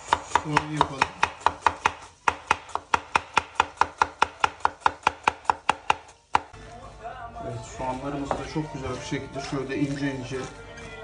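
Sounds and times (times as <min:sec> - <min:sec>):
knife chopping on wooden board: 0:00.0 - 0:06.5.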